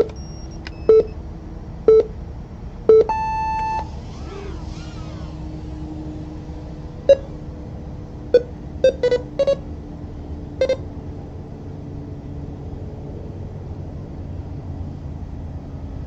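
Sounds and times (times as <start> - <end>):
short electronic beeps: 0.0 - 1.2, 1.9 - 2.1, 2.9 - 3.9, 7.1 - 7.3, 8.3 - 9.6, 10.6 - 10.8.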